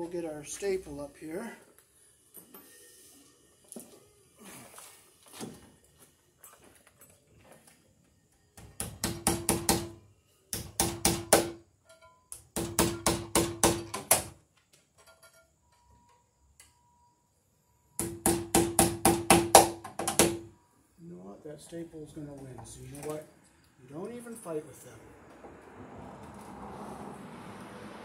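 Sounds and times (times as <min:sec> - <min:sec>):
hammer blows on metal staple: 0:08.7 - 0:11.6.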